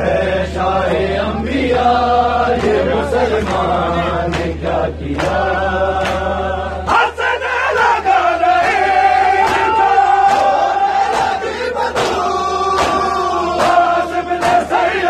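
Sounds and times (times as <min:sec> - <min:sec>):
crowd of men chanting: 0:00.0 - 0:15.0
hands slapping chests: 0:04.3 - 0:06.3, 0:08.6 - 0:14.9.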